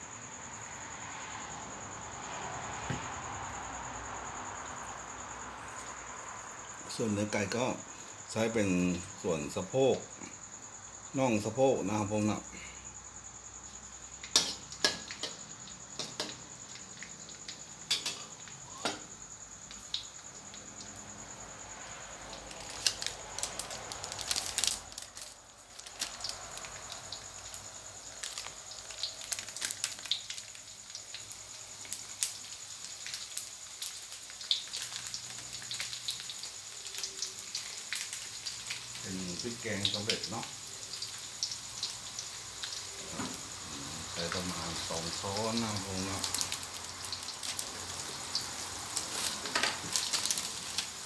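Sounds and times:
garlic sizzling in oil: 13.3 - 21.4, 22.3 - 51.0
oil popping and crackling: 14.2 - 19.0, 19.6 - 21.1, 22.2 - 51.0.

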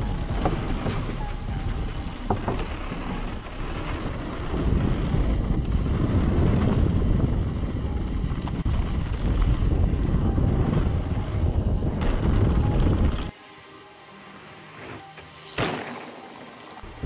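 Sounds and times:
bike tyres rumbling over dirt: 0.0 - 13.3
wind rushing over microphone: 0.0 - 13.3.

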